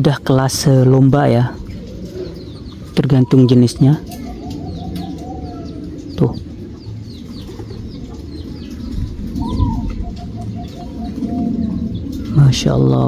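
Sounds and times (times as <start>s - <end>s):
doves cooing: 0.0s - 13.0s.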